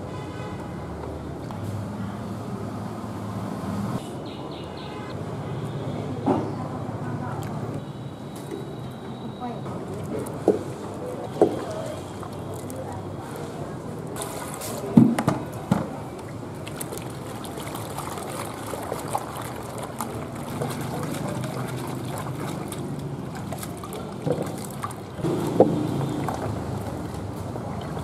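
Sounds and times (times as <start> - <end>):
water sloshing and splashing: 8.4 - 28.0
water poured from bucket into bowl: 14.2 - 15.0, 16.1 - 28.0.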